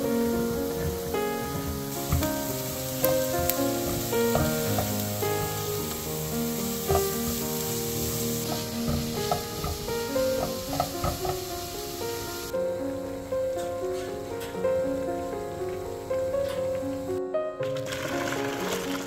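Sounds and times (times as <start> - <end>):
vegetables sizzling in oil: 0.0 - 12.6, 17.8 - 19.0
background music: 0.0 - 19.0
spatula clicking against pan: 8.4 - 11.6.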